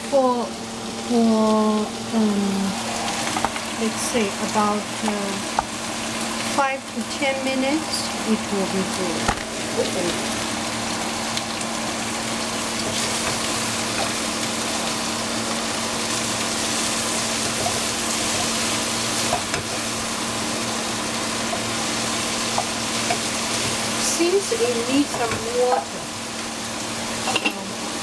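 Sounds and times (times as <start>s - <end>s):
vegetables sizzling in frying pan: 0.0s - 28.0s.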